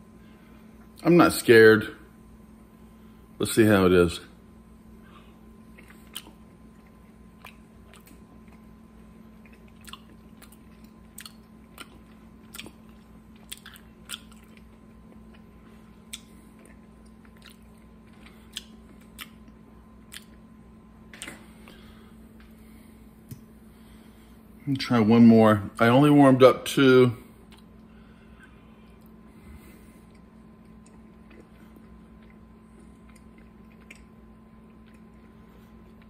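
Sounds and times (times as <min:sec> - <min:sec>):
faint steady hum: 0:00.0 - 0:36.0
wet mouth smacks chewing: 0:05.7 - 0:08.7, 0:09.4 - 0:20.4, 0:30.0 - 0:36.0.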